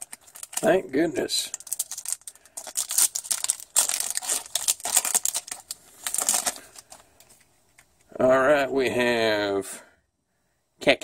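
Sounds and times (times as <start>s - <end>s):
wrapper tearing and crinkling: 0.0s - 7.2s.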